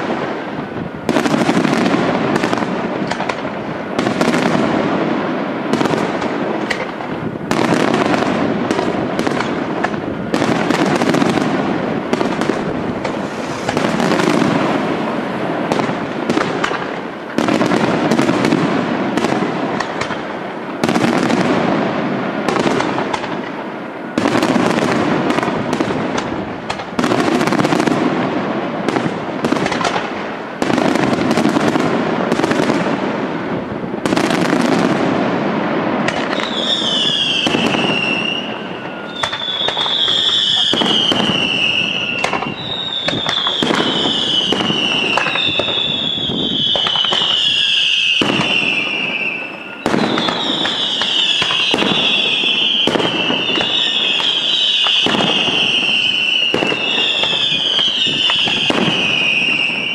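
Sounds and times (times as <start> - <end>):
fireworks bangs and crackle: 0.0 - 59.9.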